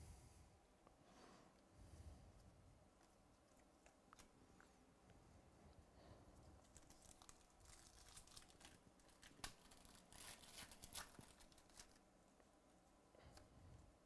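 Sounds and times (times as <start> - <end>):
sharp wrapper crack: 6.6 - 12.0
wrapper crinkling and tearing: 6.6 - 12.0.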